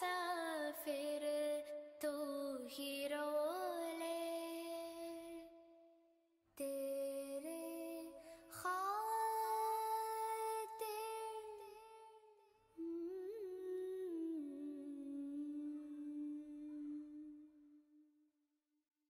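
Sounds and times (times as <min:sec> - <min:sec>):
person humming slow melody: 0:12.8 - 0:17.7.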